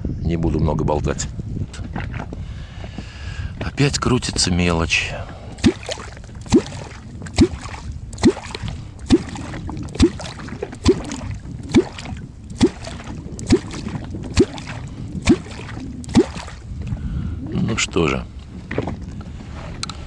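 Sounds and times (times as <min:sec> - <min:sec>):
catfish call striking water: 0:05.6 - 0:16.6.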